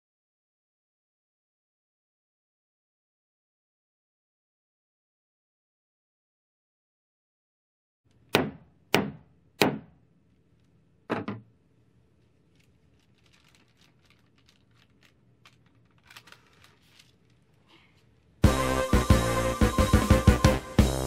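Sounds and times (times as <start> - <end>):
baking paper rustling: 12.2 - 18.3.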